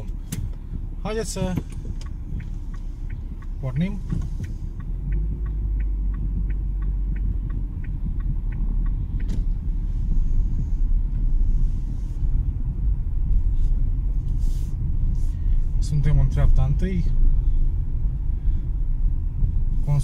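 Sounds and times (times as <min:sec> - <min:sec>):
car engine and tyres rumbling: 0:00.0 - 0:20.0
light regular ticks: 0:00.1 - 0:14.4.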